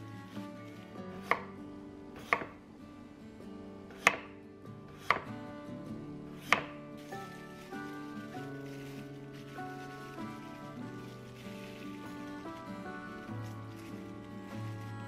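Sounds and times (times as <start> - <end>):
soft background music: 0.0 - 15.0
knife slicing cucumber: 2.2 - 2.6, 4.0 - 4.3, 5.0 - 5.3, 6.4 - 6.8.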